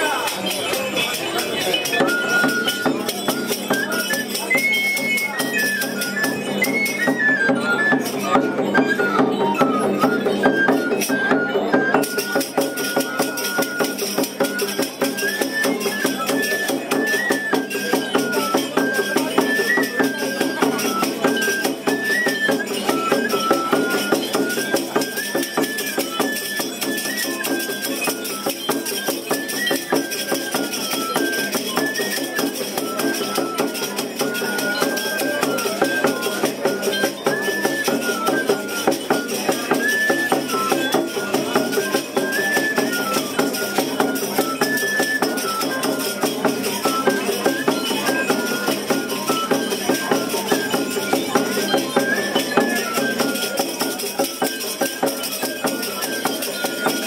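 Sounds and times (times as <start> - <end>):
leg rattles and bells shaking: 0.0 - 57.0
cane flute melody: 1.8 - 37.0.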